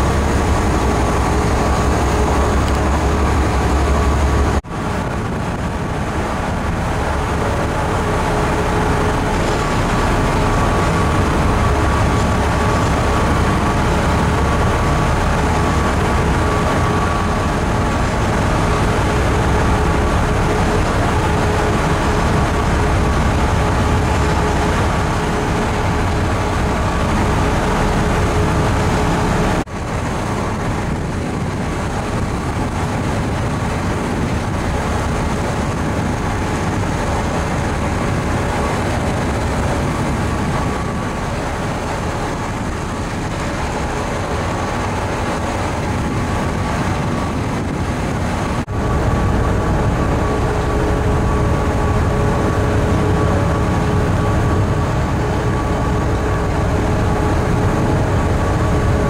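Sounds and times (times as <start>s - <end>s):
ferry engines droning: 0.0s - 59.0s
rushing water: 0.0s - 59.0s
wind rumble: 0.0s - 59.0s.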